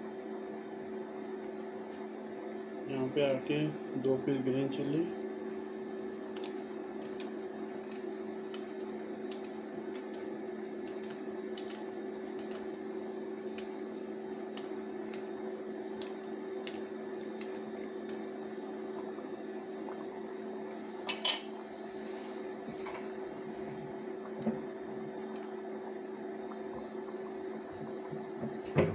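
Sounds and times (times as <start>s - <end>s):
electrical hum from hob: 0.0s - 28.9s
chillies snapping: 6.3s - 12.7s, 13.4s - 18.2s.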